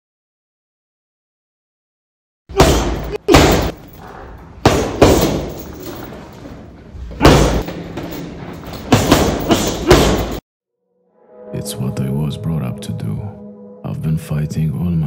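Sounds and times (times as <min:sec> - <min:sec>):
gloves punching heavy bag: 0:02.5 - 0:06.2, 0:07.0 - 0:10.4.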